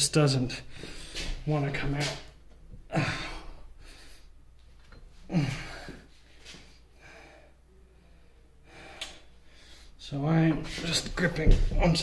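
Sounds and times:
man breathing hard: 0:00.6 - 0:01.4, 0:02.9 - 0:04.4, 0:05.3 - 0:10.0
man grunting: 0:05.3 - 0:05.9.

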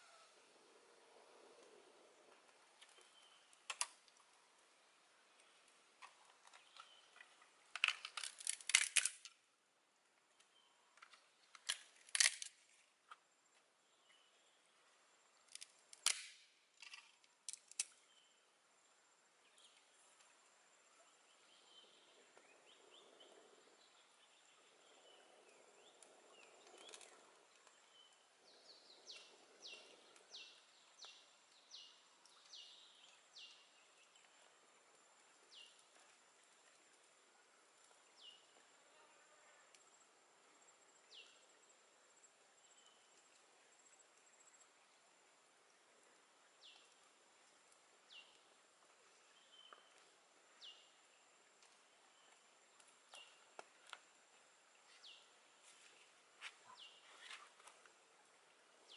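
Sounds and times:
sticks snapping: 0:07.8 - 0:09.4, 0:15.5 - 0:17.9.

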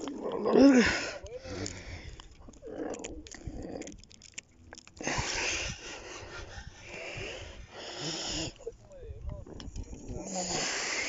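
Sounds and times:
breathy rush of noise: 0:05.0 - 0:08.8.

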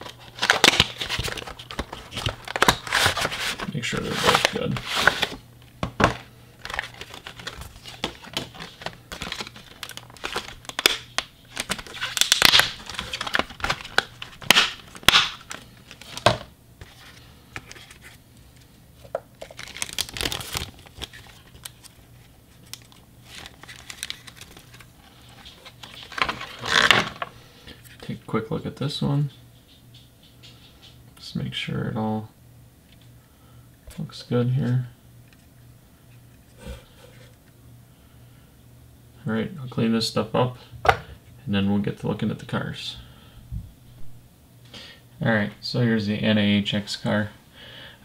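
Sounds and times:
plastic wrap crinkling: 0:00.0 - 0:05.4, 0:06.0 - 0:18.2, 0:19.0 - 0:27.3.

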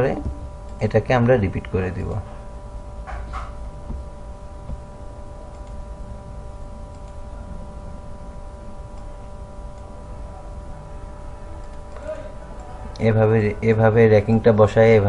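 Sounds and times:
background hum with low rumble: 0:00.0 - 0:15.0
computer mouse clicks: 0:05.5 - 0:05.8, 0:06.9 - 0:07.2, 0:11.6 - 0:13.0.

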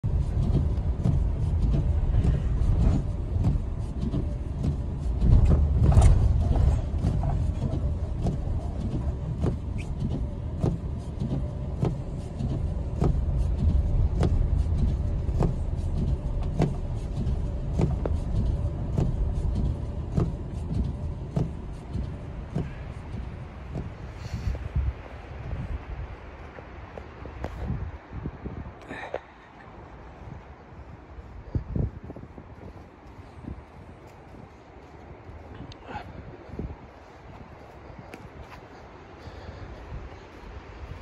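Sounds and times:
engine and tyre rumble: 0:00.0 - 0:41.0
car jolt: 0:00.3 - 0:24.6.

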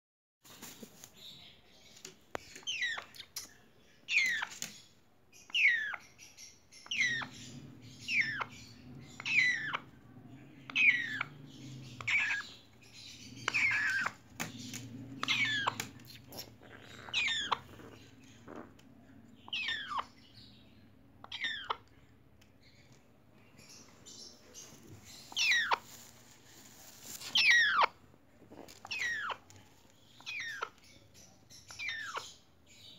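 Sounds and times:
parrot chicks calling: 0:02.4 - 0:03.4, 0:04.1 - 0:21.9, 0:23.6 - 0:26.0, 0:27.3 - 0:28.0, 0:28.8 - 0:32.9.

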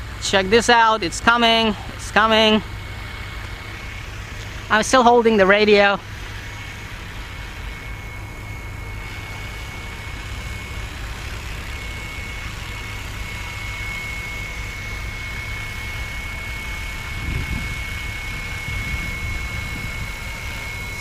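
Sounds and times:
low rumbling noise: 0:00.0 - 0:21.0
rc helicopter rotor whine: 0:00.0 - 0:21.0.

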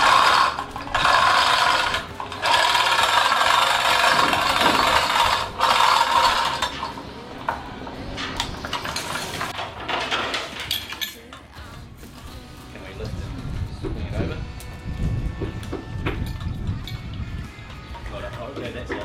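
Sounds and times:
chain hoist rattling: 0:00.0 - 0:07.0.

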